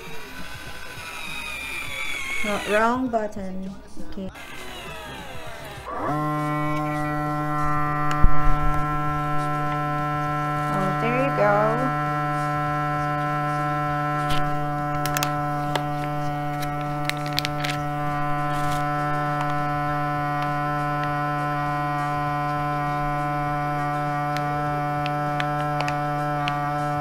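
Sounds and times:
vacuum sealer pump humming: 0.0s - 3.1s, 4.3s - 27.0s.

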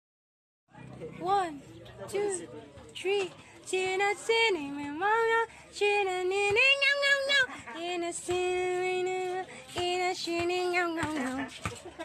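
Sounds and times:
woman singing: 3.0s - 11.6s.

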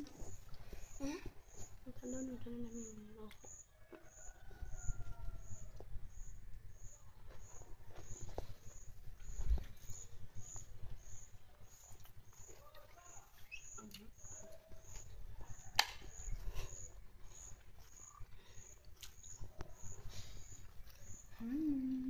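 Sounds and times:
cricket chirping: 0.0s - 22.0s
sharp click: 15.8s - 16.0s.

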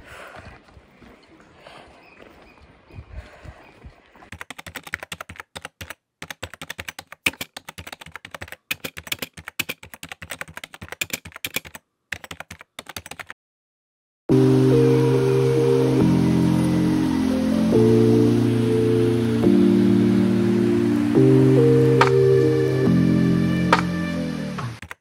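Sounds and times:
keyboard typing clicks: 4.3s - 13.4s, 24.8s - 25.0s
music with held notes: 14.3s - 24.8s.

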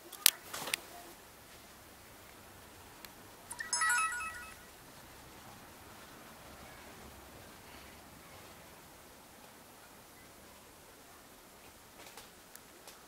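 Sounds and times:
electronic beep chime: 3.5s - 4.6s.

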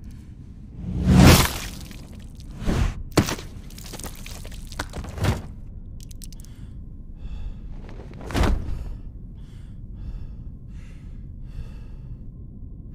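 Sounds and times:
low rumble: 0.0s - 12.9s
heavy thud: 8.0s - 9.0s
man panting heavily: 8.6s - 12.4s.

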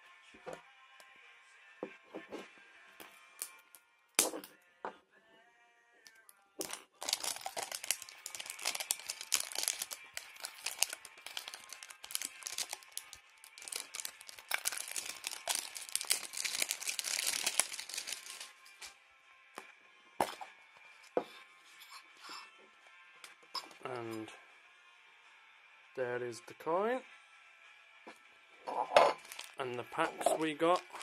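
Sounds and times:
plastic wrapping crinkling and tearing: 6.6s - 18.6s, 29.2s - 31.0s.

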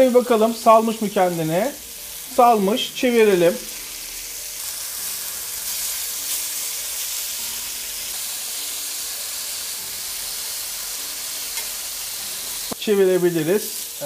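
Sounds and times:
patties sizzling in a pan: 0.0s - 14.0s
metal tongs turning patties: 11.4s - 11.8s.

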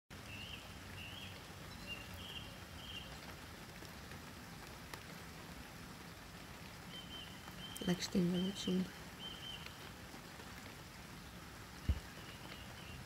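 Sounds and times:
rain hissing: 0.1s - 13.0s
nightingale singing: 0.2s - 3.3s, 6.8s - 9.9s, 11.2s - 13.0s.

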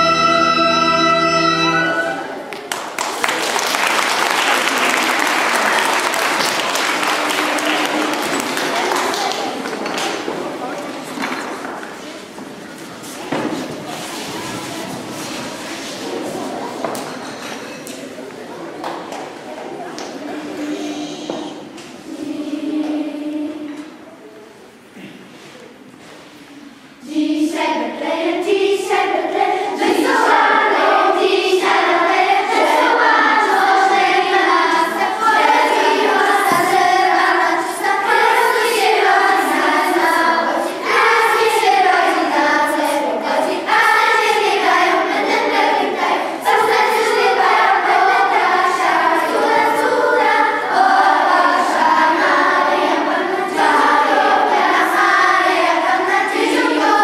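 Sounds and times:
children's choir singing a carol: 0.0s - 57.0s.

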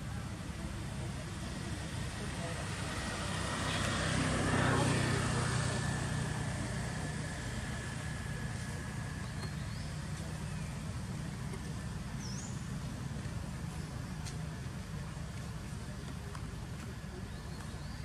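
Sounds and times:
engine humming: 0.0s - 18.0s
bird chirps: 9.2s - 10.9s.

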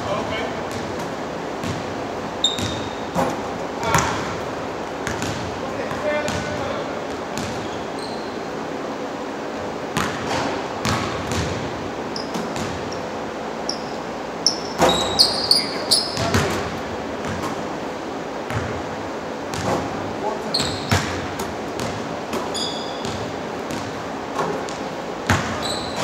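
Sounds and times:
basketballs bouncing on gym floor: 0.0s - 8.1s, 10.0s - 13.1s, 13.7s - 17.8s, 18.4s - 26.0s
shoe squeaks: 2.4s - 3.2s, 7.6s - 8.4s, 12.1s - 13.1s, 13.7s - 16.3s, 20.4s - 21.0s, 22.4s - 23.3s, 25.5s - 26.0s.

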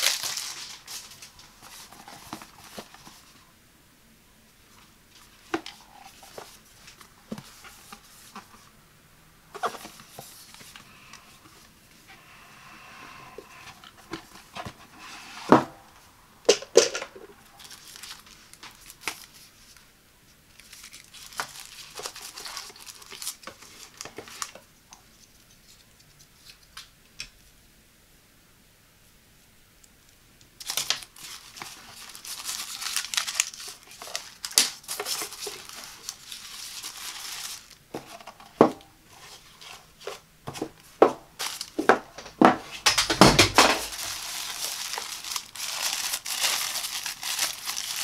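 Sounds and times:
paper and packing rustling: 0.0s - 3.4s, 4.7s - 8.7s, 9.5s - 11.8s, 16.7s - 19.9s, 20.5s - 26.6s, 30.6s - 48.0s.

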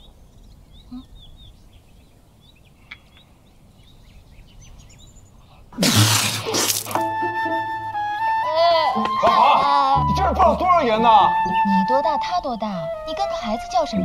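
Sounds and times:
faint bird chirps: 0.0s - 5.7s
loud liquid splash: 5.8s - 7.0s.

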